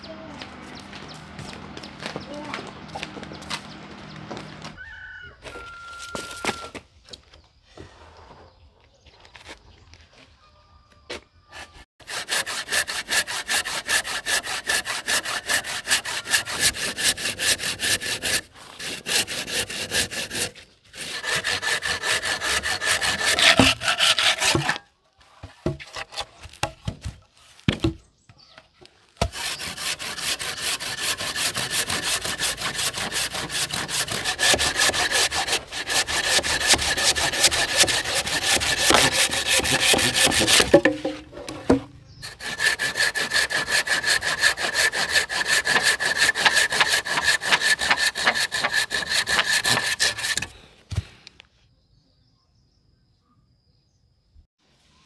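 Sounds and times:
hand saw cutting wood: 11.5 - 24.9, 25.6 - 26.9, 29.2 - 51.0.

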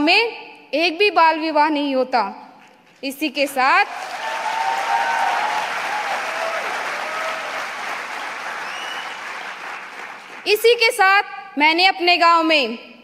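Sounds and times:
audience applauding: 3.9 - 10.5.

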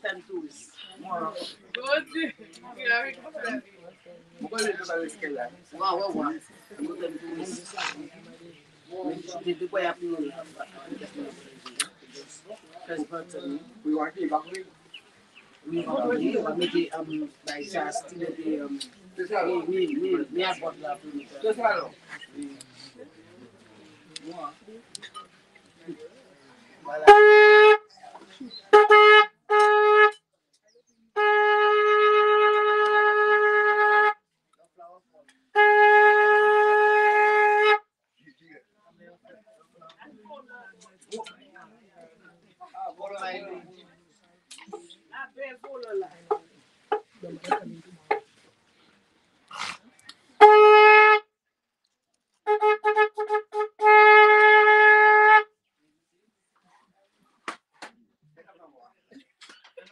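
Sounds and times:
horn blasts: 27.0 - 27.9, 28.7 - 30.2, 31.2 - 34.2, 35.5 - 37.9, 50.4 - 51.3, 52.4 - 55.5.

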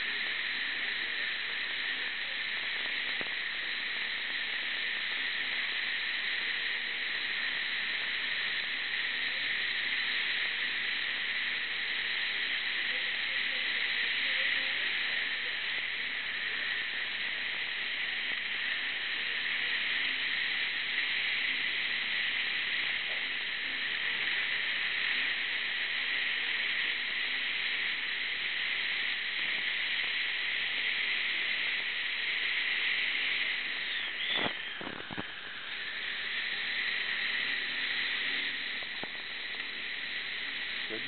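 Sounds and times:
dental suction hissing: 0.0 - 41.0.

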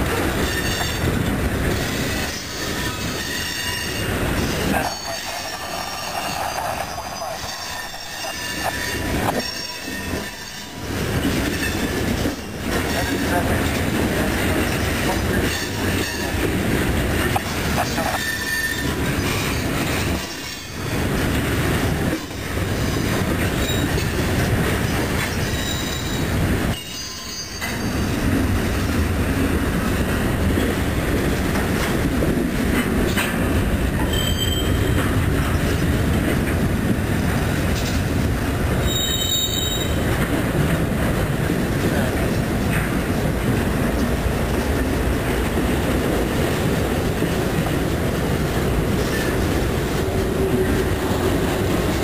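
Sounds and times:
freight train wheels clattering: 0.0 - 52.0
high wheel squeal: 0.4 - 1.1, 1.7 - 10.8, 17.8 - 21.0, 23.6 - 24.2, 25.3 - 26.2, 26.8 - 28.0, 34.0 - 35.0, 38.8 - 40.0.

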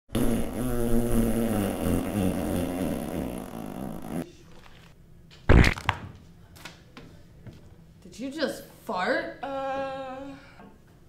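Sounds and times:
fart sound: 0.1 - 4.3, 5.5 - 6.0.

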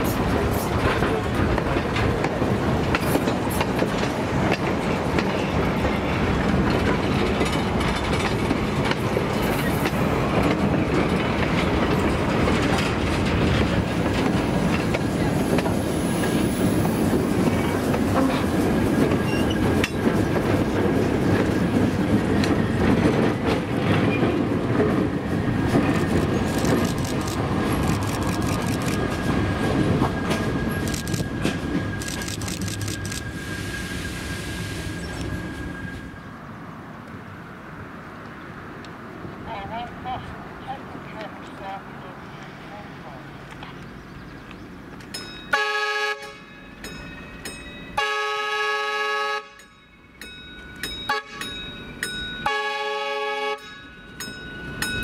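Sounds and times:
train wheels clattering over joints: 0.0 - 33.1
wheels squealing on rail: 15.7 - 20.3, 29.0 - 36.3.

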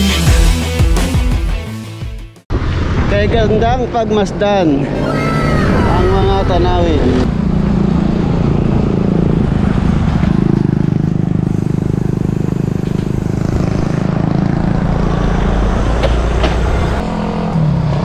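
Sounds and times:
vehicle engine rumble: 4.4 - 18.0.

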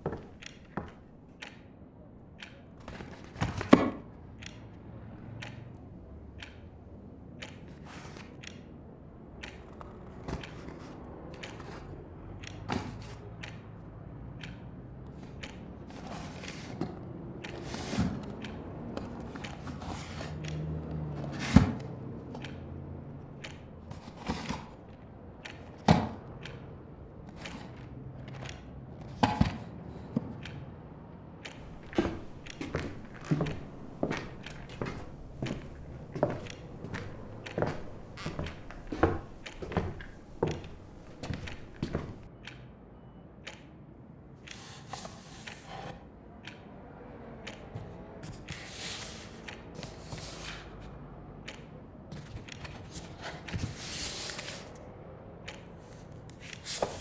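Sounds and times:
knocks and taps of handling things: 0.0 - 1.6, 31.4 - 42.3
street traffic rumble: 4.0 - 43.4, 45.9 - 57.0.

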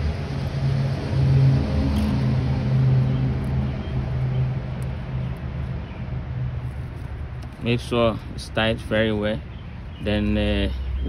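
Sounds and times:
low mechanical drone: 0.0 - 8.5.

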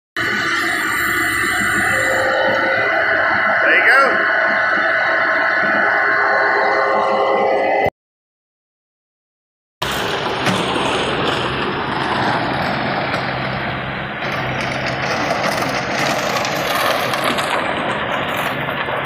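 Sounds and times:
skid steer engine running: 9.8 - 19.0.

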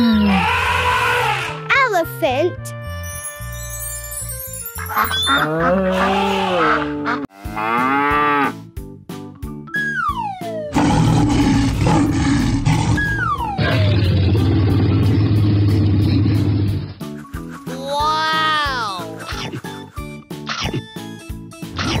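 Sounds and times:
cartoon moo-like animal calls: 5.1 - 8.6.

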